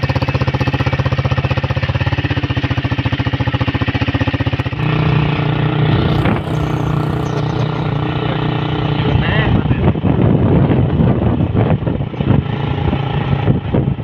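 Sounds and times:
small motorcycle engine puttering: 0.0s - 9.1s.

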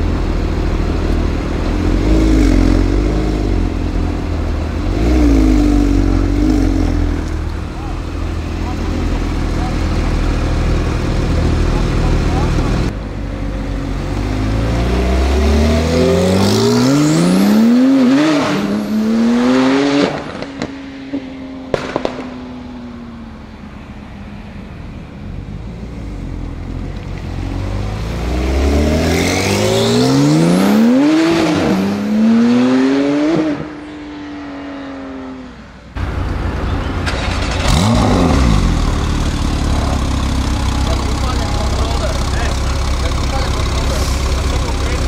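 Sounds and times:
car engine accelerating: 0.0s - 33.8s, 34.8s - 45.0s
car engine idling: 5.6s - 14.7s, 35.9s - 45.0s
exhaust cracks: 21.7s - 22.6s, 36.2s - 45.0s.

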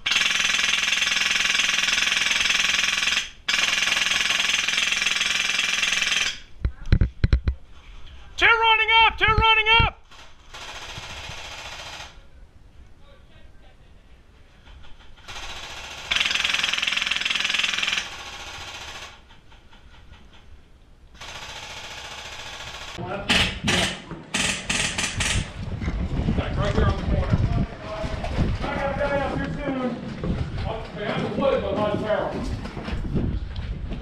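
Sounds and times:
airsoft rifle firing full auto: 0.0s - 6.5s, 10.1s - 12.2s, 15.2s - 19.2s, 21.2s - 23.0s
low rumble: 24.8s - 31.1s.

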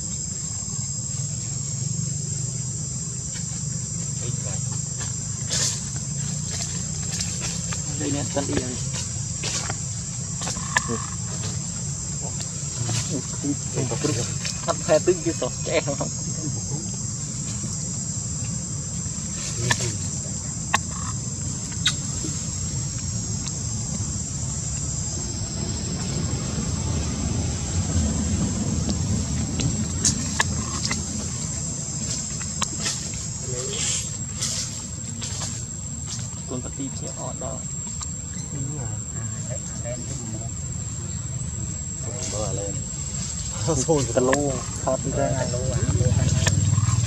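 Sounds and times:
insects chorus: 0.0s - 47.0s
low hum: 0.0s - 47.0s.

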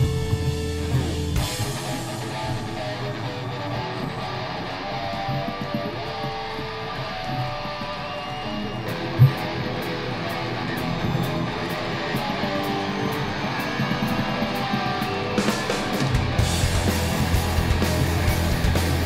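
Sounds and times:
rock music with electric guitar: 0.0s - 19.0s.

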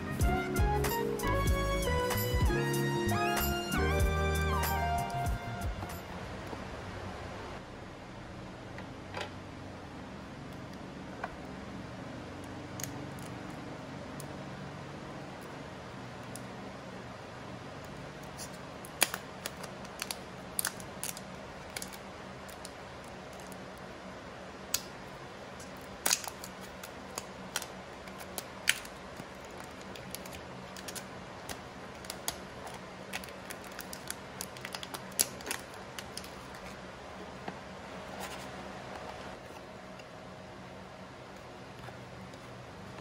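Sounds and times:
faint steady hum: 0.0s - 43.0s
plastic film crackling: 25.7s - 36.8s.

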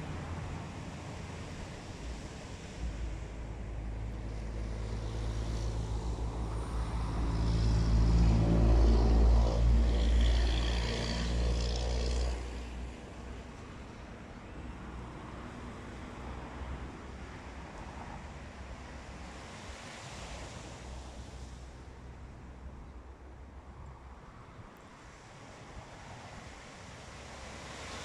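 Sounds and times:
vehicle engine passing by: 4.3s - 13.0s.

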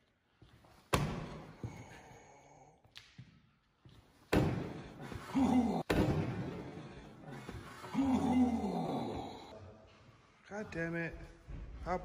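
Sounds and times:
man groaning: 5.1s - 6.3s, 7.8s - 9.6s.

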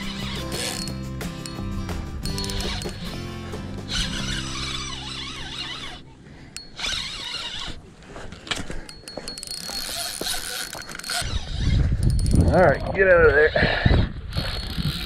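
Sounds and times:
reel clicks: 0.0s - 1.6s, 2.2s - 3.1s, 3.9s - 13.0s, 14.3s - 15.0s
fishing reel gears whirring: 0.0s - 3.2s, 3.9s - 7.8s, 8.9s - 12.8s, 14.3s - 15.0s.

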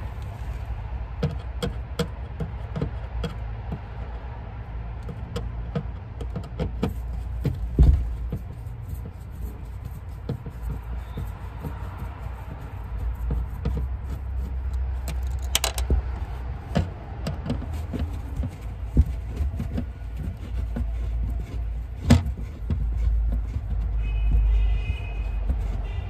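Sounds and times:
screwdriver metallic clicks and scrapes: 8.3s - 26.0s.

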